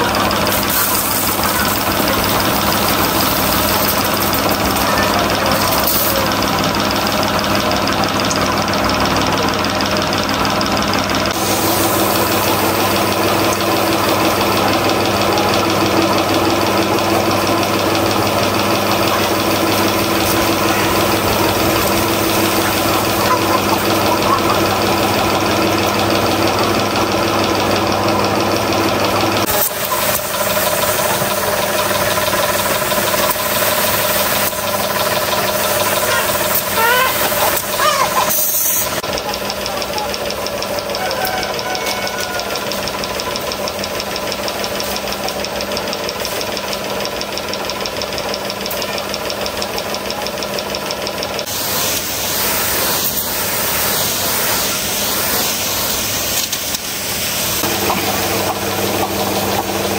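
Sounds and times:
fast even ticking: 0:00.0 - 0:51.5
engine humming: 0:00.0 - 0:59.9.

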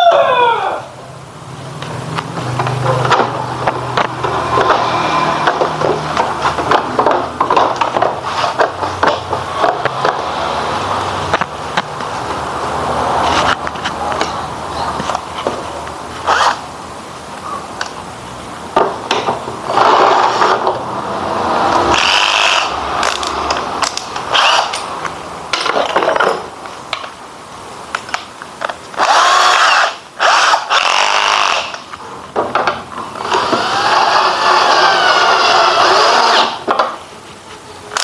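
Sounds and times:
tools clicking and clattering: 0:25.5 - 0:27.1
cordless drill motor whine: 0:29.0 - 0:31.8, 0:33.2 - 0:36.6.

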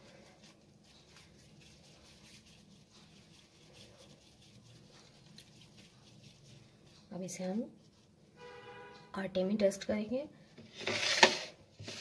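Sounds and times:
soft dough handling: 0:00.0 - 0:08.8.

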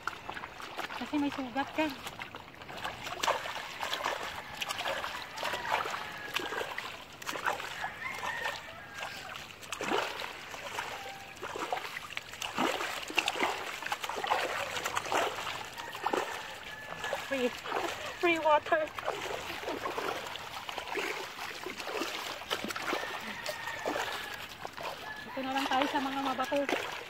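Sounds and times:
seawater splashing: 0:00.0 - 0:27.0.

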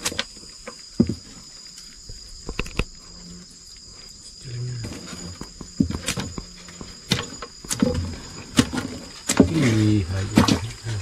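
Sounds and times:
high insect whine: 0:00.0 - 0:11.0
prawn tail knocking and rattling: 0:04.8 - 0:11.0.

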